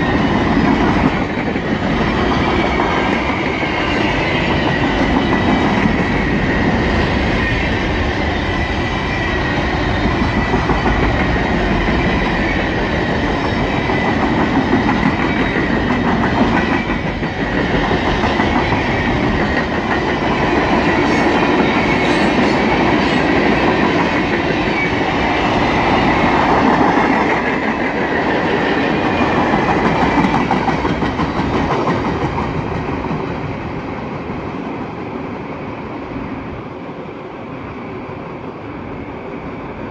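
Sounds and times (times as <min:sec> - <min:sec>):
train wheels clacking over rail joints: 0:26.0 - 0:33.6.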